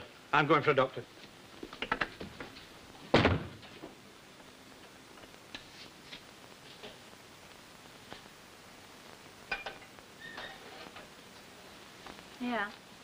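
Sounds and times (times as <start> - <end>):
door slamming shut: 3.1 - 3.6.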